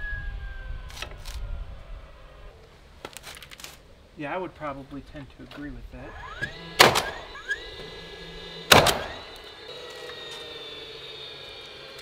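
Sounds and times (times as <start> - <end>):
faint high whine: 0.0 - 3.0, 4.0 - 12.0
nailer motor whine: 6.0 - 12.0
nail gun shots: 6.4 - 7.3, 8.7 - 9.2.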